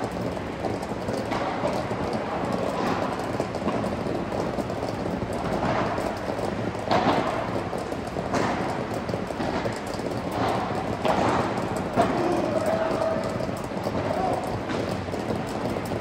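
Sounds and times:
rackets striking ball: 0:00.0 - 0:16.0.

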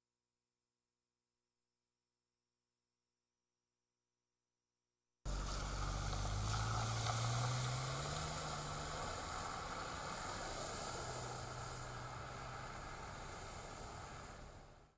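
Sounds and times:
low engine hum: 0:05.3 - 0:14.9
water spraying from tyres: 0:05.3 - 0:14.9.

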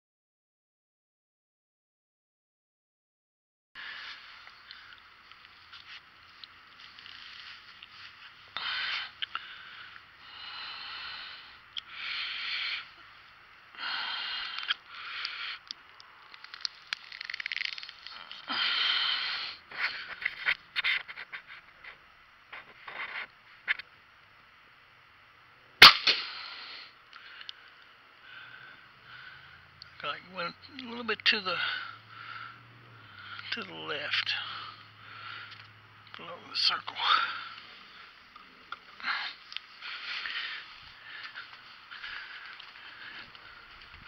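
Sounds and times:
bowstring snap: 0:25.8 - 0:26.4.

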